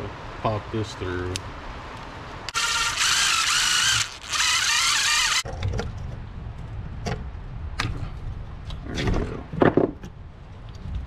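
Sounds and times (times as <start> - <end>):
cordless drill whining: 2.5 - 5.4.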